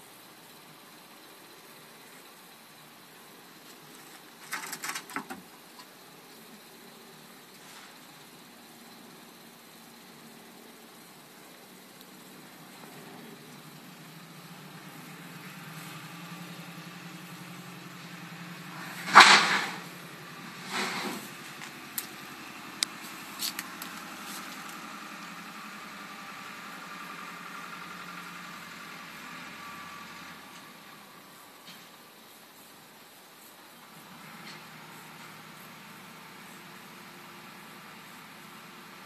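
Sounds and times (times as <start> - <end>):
engine running: 12.2 - 31.9
loud burst of noise: 18.7 - 20.0.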